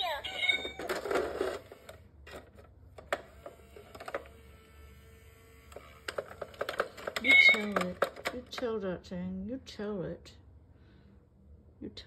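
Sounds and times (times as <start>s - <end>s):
faint steady hum: 0.0s - 12.0s
coin bank mechanism clicking: 5.7s - 8.6s.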